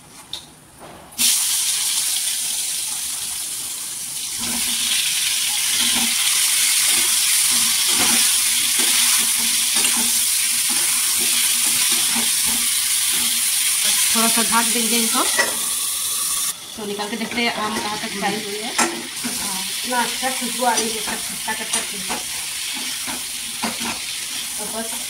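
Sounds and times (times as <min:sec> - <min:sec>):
mango pieces sizzling in hot oil: 0:01.2 - 0:25.0
spatula stirring frying pieces: 0:05.6 - 0:15.3, 0:16.9 - 0:25.0.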